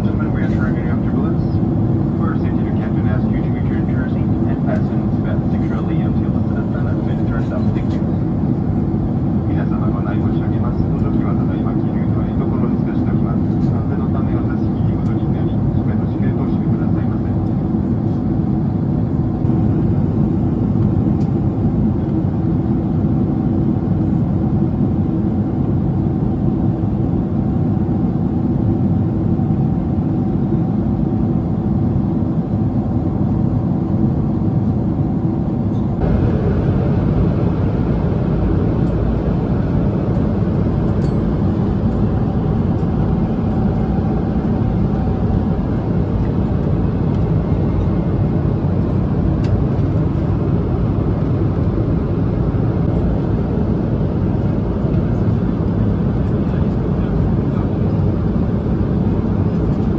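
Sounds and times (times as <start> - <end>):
airplane cabin noise: 0.0 - 59.9
faint steady hum: 35.7 - 59.9.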